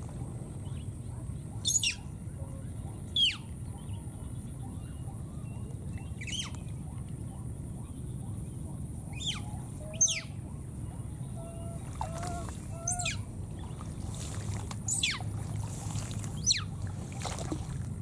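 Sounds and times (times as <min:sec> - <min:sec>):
steady low hum: 0:00.0 - 0:18.0
small animal squealing: 0:11.6 - 0:13.2.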